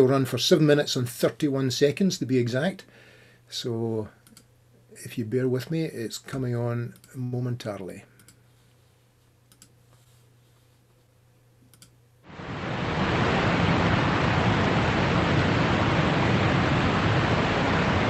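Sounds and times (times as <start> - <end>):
faint clicks: 4.2 - 4.5, 8.2 - 8.4, 9.5 - 9.8, 11.6 - 12.0
waterfall roaring: 12.3 - 18.0.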